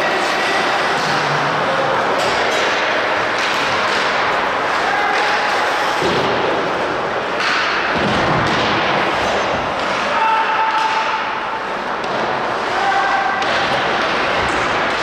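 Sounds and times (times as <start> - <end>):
ice hockey play noise: 0.0 - 15.0
thuds of puck and sticks: 2.2 - 4.4, 5.1 - 6.6, 7.4 - 11.4.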